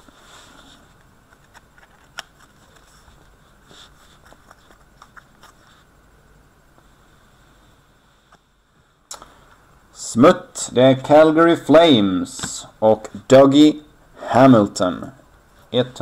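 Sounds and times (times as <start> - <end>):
trading cards rustling: 1.2 - 5.8.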